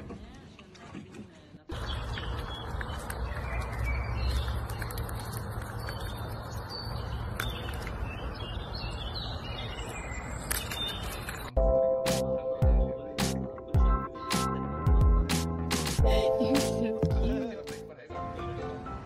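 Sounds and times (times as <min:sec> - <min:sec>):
small birds chirping: 0:01.7 - 0:11.6.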